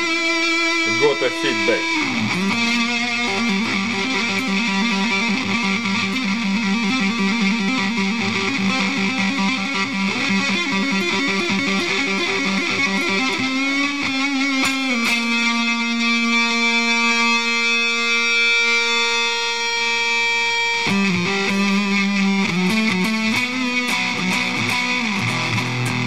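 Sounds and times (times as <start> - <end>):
fuzzed electric guitar trill: 0.0 - 26.0
guitar feedback: 0.0 - 26.0.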